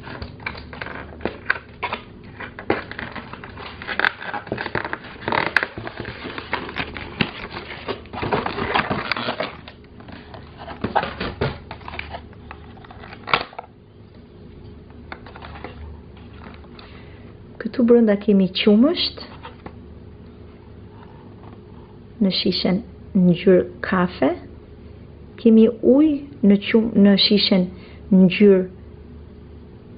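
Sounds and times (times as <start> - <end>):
toy packaging rustling and clicking: 0.0 - 13.7, 15.1 - 16.9.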